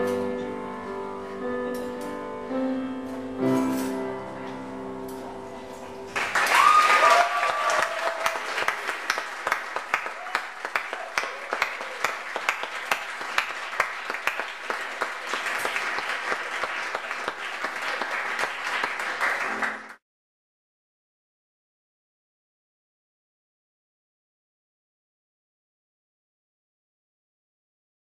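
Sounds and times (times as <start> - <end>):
audience applauding: 6.1 - 20.0
audience cheering: 6.2 - 20.0.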